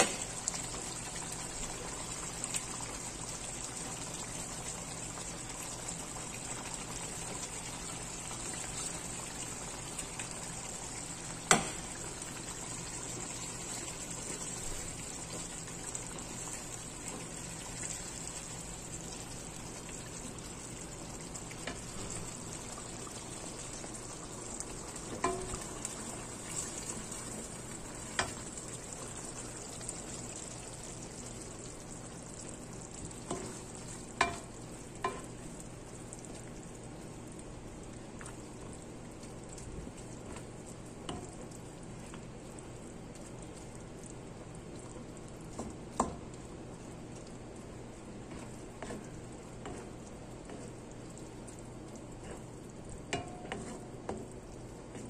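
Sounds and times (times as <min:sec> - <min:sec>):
sauce sizzling and bubbling in wok: 0:00.0 - 0:55.0
spatula knocking against pan: 0:25.2 - 0:25.5.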